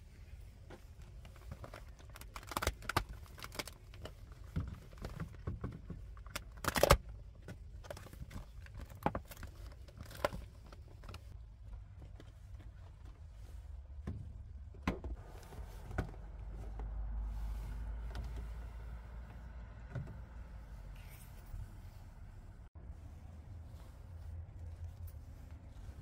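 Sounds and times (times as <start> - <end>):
vinyl crinkling: 0.9 - 5.5, 7.7 - 13.4.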